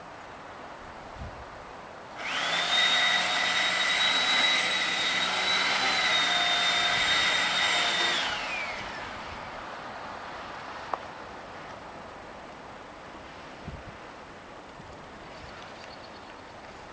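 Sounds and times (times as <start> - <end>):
motor whine: 2.2 - 9.6.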